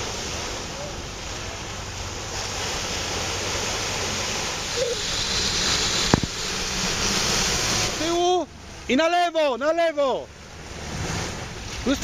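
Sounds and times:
water rushing and splashing: 0:00.0 - 0:12.0
sharp knock: 0:06.1 - 0:06.4.

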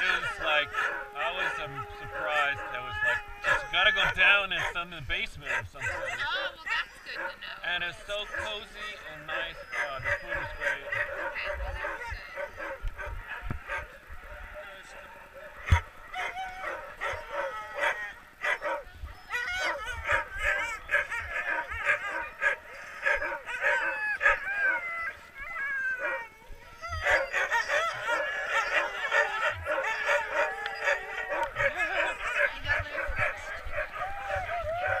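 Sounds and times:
dogs barking and howling: 0:00.0 - 0:35.0.

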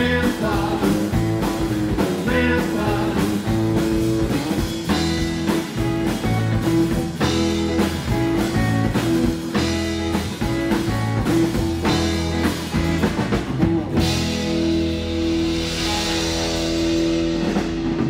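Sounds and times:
drum kit: 0:00.0 - 0:18.0
electric guitar: 0:00.0 - 0:18.0
upright double bass: 0:00.0 - 0:18.0.

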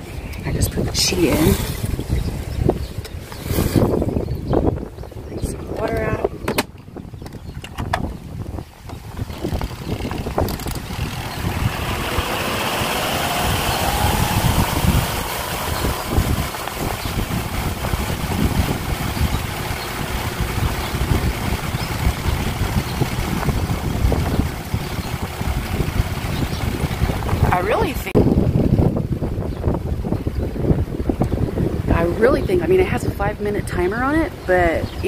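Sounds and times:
spin dryer motor whirring: 0:08.9 - 0:28.1.

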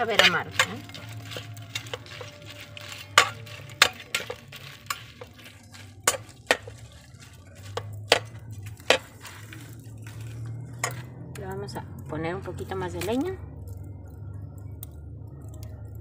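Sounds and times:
metal spatula scraping a pot: 0:00.0 - 0:11.1
chiles sizzling in oil: 0:00.0 - 0:16.0.

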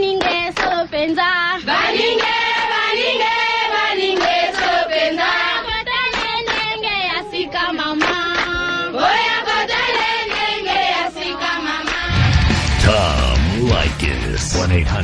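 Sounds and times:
voices singing a chant: 0:01.6 - 0:12.2.

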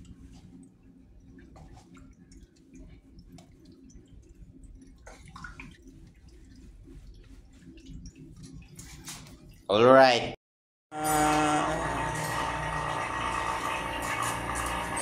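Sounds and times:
low steady hum: 0:00.0 - 0:09.7
oil dripping and trickling: 0:00.1 - 0:09.7.

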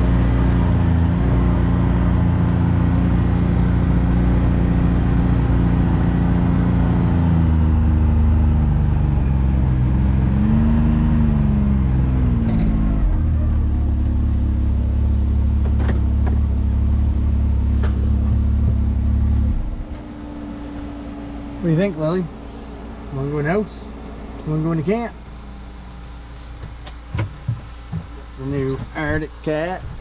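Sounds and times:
engine running: 0:00.0 - 0:30.0.

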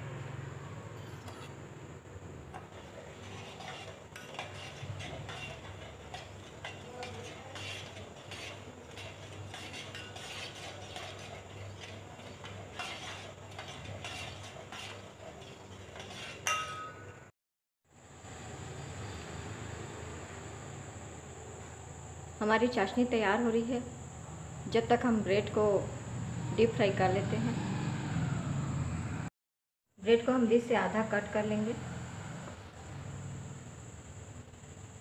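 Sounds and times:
spoon scraping metal pot: 0:01.0 - 0:01.6, 0:02.5 - 0:17.0
sharp clink: 0:16.5 - 0:17.2.

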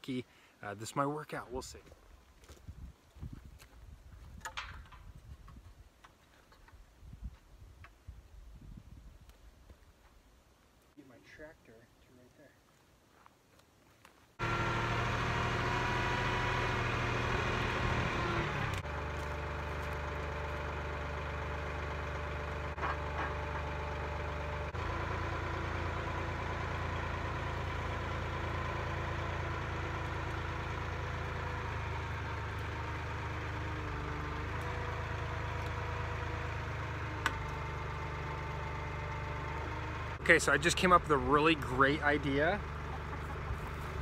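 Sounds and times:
tractor diesel engine idling: 0:14.4 - 0:44.0.

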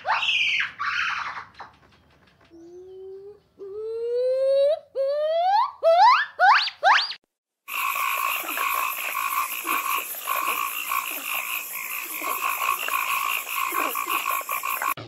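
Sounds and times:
chorus of small animals calling: 0:07.7 - 0:15.0.

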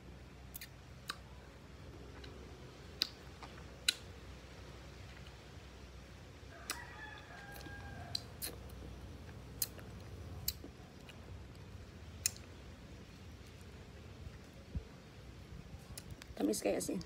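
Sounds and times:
fruit rind clicking and snapping: 0:00.5 - 0:01.3, 0:02.2 - 0:04.1, 0:09.6 - 0:11.6, 0:12.2 - 0:12.6
rooster crowing: 0:06.5 - 0:08.3.

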